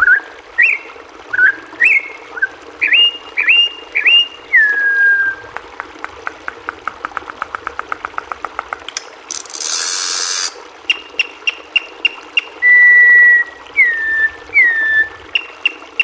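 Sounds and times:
bird singing: 0.0 - 5.3, 10.9 - 16.0.

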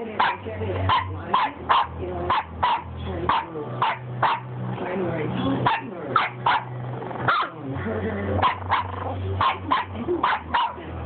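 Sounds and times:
puppy barking and yipping: 0.2 - 4.5, 5.6 - 6.7, 7.3 - 7.6, 8.4 - 10.8.

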